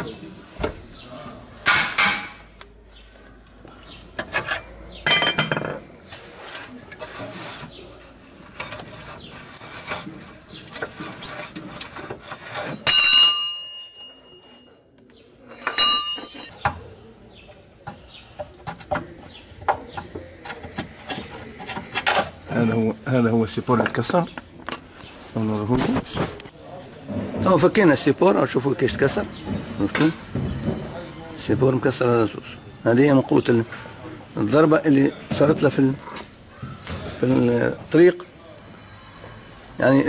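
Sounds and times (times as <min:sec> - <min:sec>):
socket wrench and metal parts clinking: 0:15.5 - 0:16.5
metal part struck ringing: 0:15.6 - 0:16.5.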